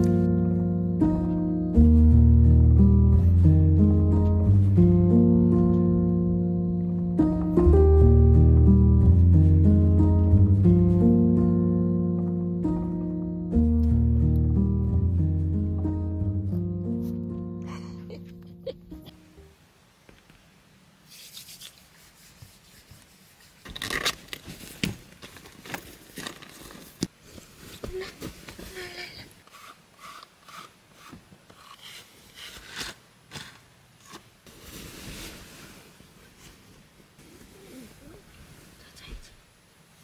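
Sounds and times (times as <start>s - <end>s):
blanket and bedding rustling: 21.2s - 31.1s, 34.4s - 38.8s.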